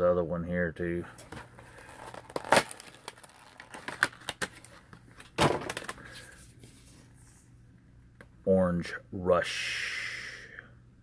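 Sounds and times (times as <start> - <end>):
plastic package crinkling: 1.2 - 6.2.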